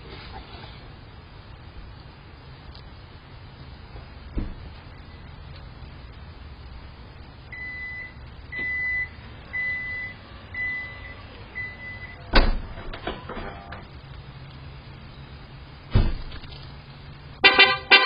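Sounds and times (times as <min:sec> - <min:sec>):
electronic beeps: 0:07.5 - 0:12.2.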